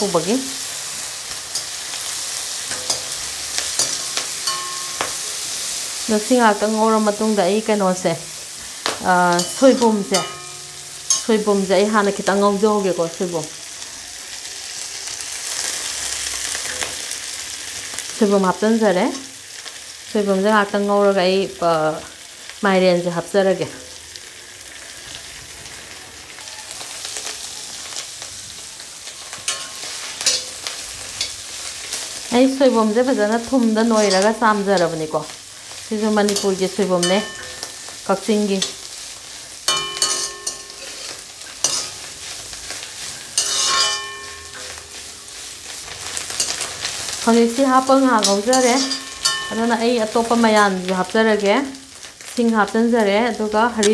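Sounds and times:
food sizzling in oil: 0:00.0 - 0:53.9
metal spatula scraping a wok: 0:00.6 - 0:06.0, 0:08.8 - 0:12.9, 0:29.1 - 0:35.1, 0:39.7 - 0:50.8.

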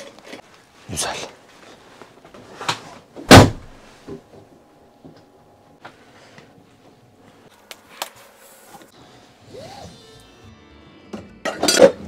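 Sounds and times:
door banging shut: 0:03.3 - 0:03.8.

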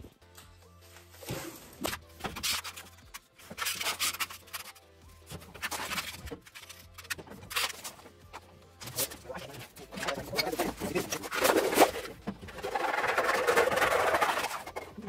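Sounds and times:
background music: 0:00.0 - 0:15.0
sheet metal scraping on floor: 0:11.2 - 0:14.8.

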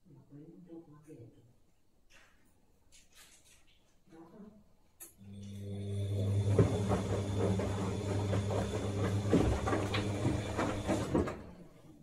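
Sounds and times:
washer-dryer electrical hum: 0:05.0 - 0:12.0.

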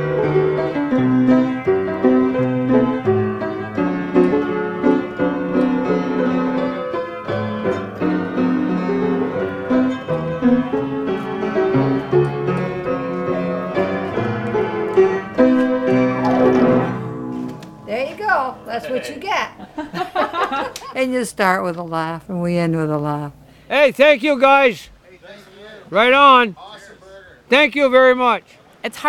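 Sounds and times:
piano music: 0:00.0 - 0:20.7.

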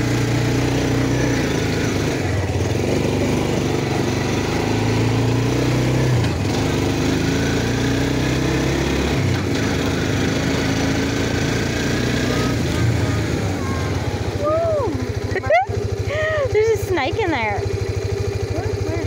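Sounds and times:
atv engine running: 0:00.0 - 0:19.0.

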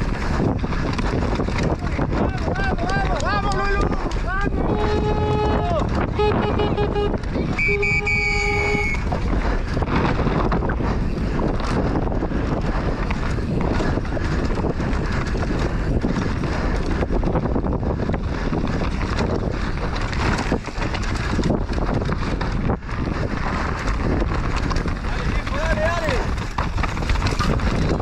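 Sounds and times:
mountain bike rattling on dirt: 0:00.0 - 0:28.0
wind on microphone: 0:00.0 - 0:28.0
brief held tone: 0:07.5 - 0:09.0.

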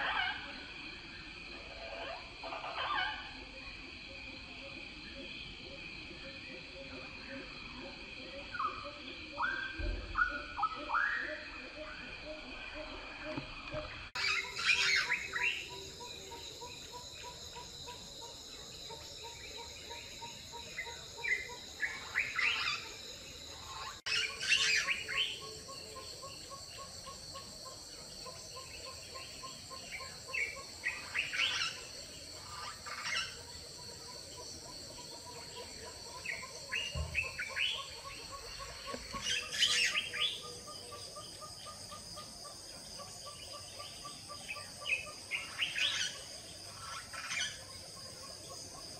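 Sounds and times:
high-pitched insect chorus: 0:00.0 - 0:48.9
small birds chirping: 0:13.8 - 0:48.9.

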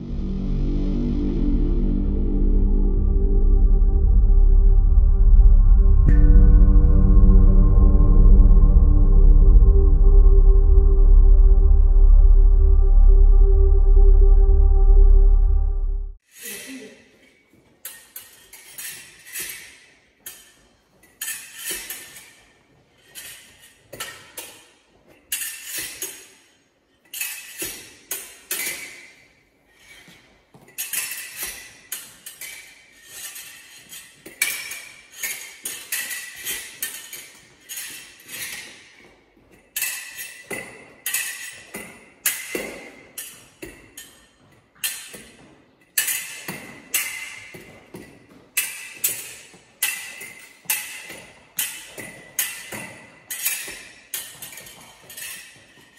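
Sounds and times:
music sting: 0:00.0 - 0:16.2
fencing blades clashing: 0:16.3 - 0:55.9.

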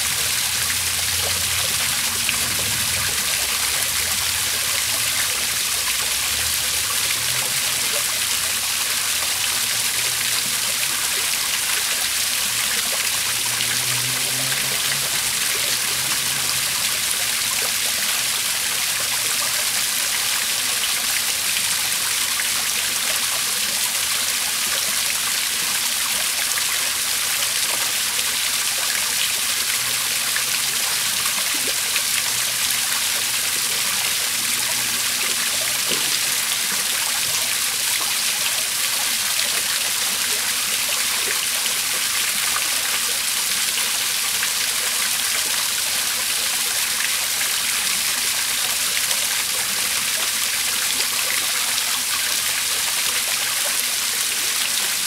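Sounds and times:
waterfall splashing into pond: 0:00.0 - 0:55.0.

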